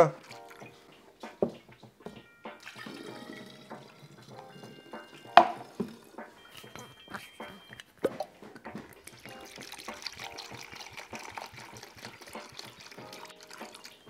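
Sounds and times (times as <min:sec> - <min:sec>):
liquid pouring into jug: 0:02.6 - 0:06.8, 0:08.1 - 0:14.0.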